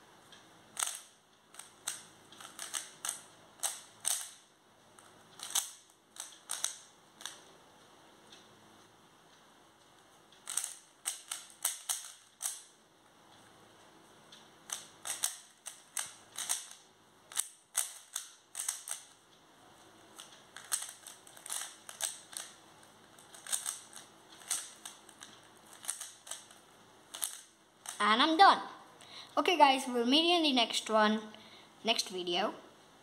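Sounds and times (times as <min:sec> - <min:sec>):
plastic puzzle cube clacking: 0:00.8 - 0:04.4, 0:05.0 - 0:07.5, 0:10.4 - 0:12.7, 0:14.7 - 0:19.2, 0:20.1 - 0:28.0.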